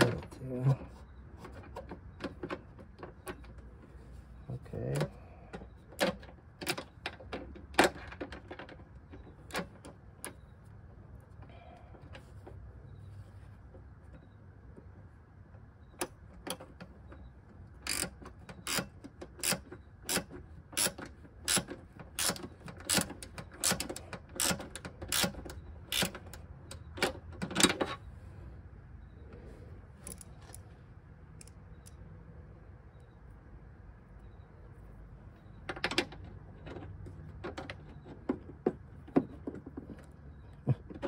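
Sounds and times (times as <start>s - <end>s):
ratcheting wrench clicking: 17.8s - 27.2s.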